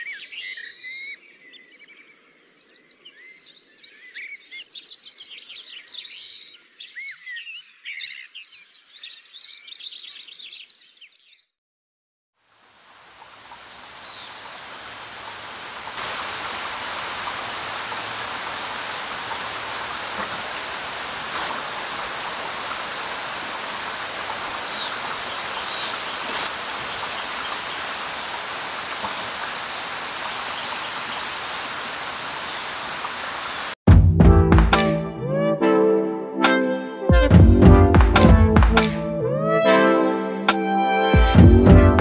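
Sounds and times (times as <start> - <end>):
rushing water: 12.4 - 33.8
brass music: 33.9 - 42.0.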